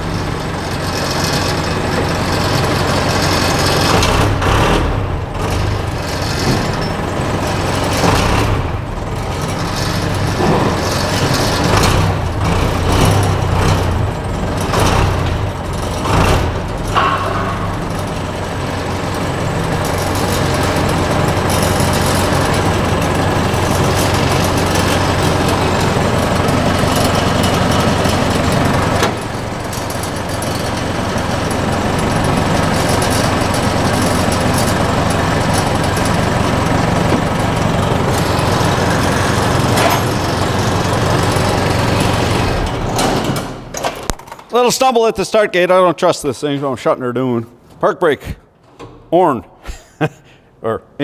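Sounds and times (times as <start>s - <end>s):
machine engine running: 0.0s - 44.1s.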